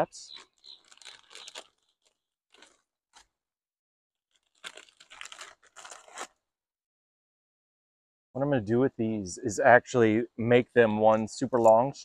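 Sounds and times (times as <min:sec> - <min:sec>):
plastic packaging crinkling: 0:00.2 - 0:03.3, 0:04.3 - 0:06.4.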